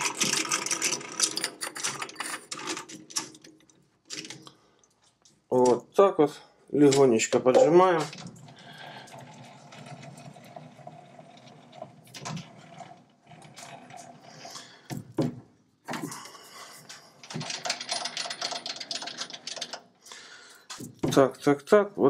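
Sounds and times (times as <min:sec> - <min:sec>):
metallic clicks and knocks: 0:17.2 - 0:19.9.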